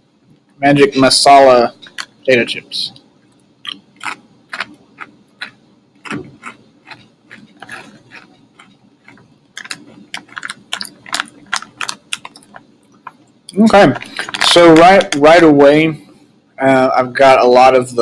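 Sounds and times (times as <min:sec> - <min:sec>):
potato chips crunching: 0:03.6 - 0:15.2.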